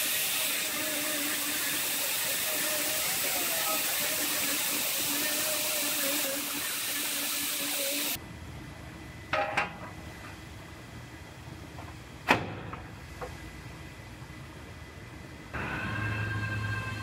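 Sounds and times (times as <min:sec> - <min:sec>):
pneumatic grinder sanding metal: 0:00.0 - 0:08.2.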